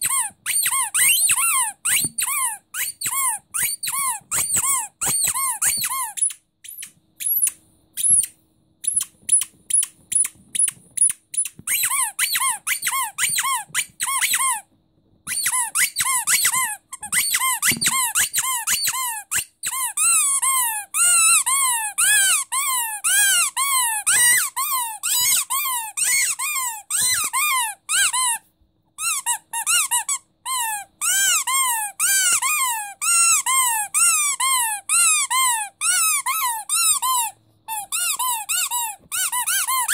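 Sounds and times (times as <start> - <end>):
squeaky rubber dog toy: 0.0 - 39.9.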